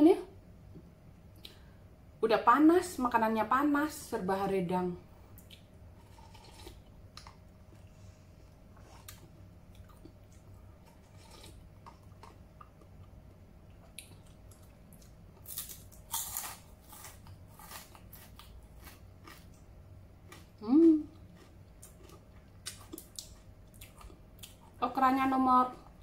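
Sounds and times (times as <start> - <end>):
soft chewing: 5.3 - 24.8.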